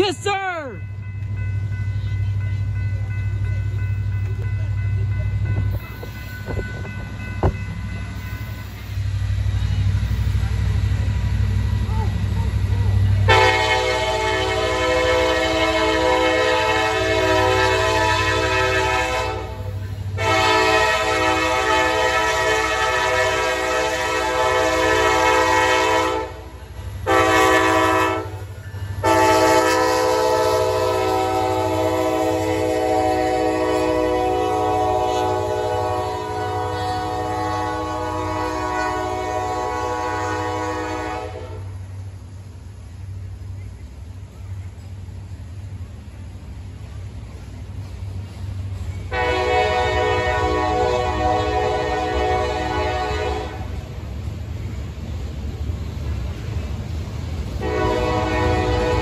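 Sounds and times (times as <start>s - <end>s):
train cars rumbling by: 0.0s - 59.0s
locomotive air horn blasts: 13.2s - 41.8s, 49.1s - 53.8s, 57.6s - 59.0s.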